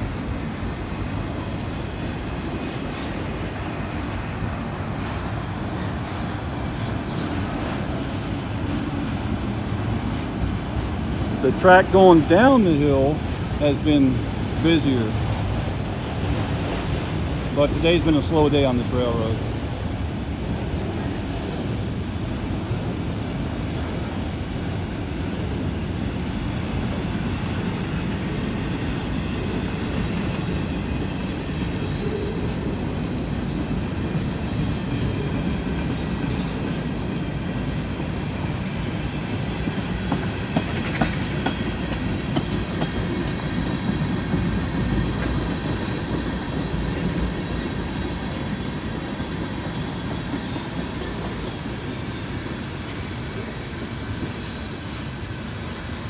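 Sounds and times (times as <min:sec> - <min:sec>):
freight train cars rumbling: 0:00.0 - 0:56.0
train wheel clacks: 0:23.9 - 0:56.0.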